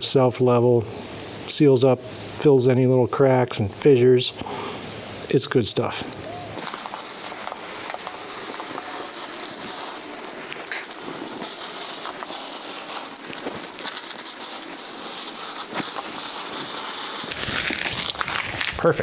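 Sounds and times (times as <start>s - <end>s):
tape peeling off concrete: 6.1s - 19.0s.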